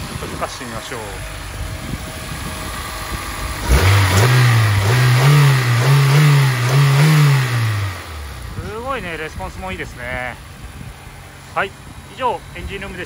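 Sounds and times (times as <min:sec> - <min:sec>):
car engine idling and revving: 0:00.0 - 0:13.0.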